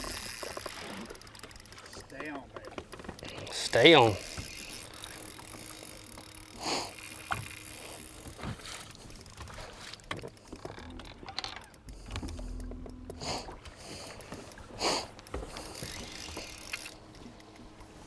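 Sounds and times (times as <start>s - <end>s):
fishing reel clicks and knocks: 0.0s - 18.0s
water noise: 0.0s - 18.0s
wind: 0.0s - 18.0s
low hum: 4.2s - 18.0s.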